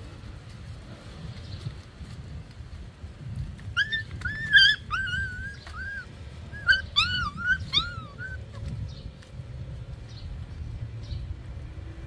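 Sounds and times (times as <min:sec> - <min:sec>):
puppy whimpering: 0:03.7 - 0:08.7.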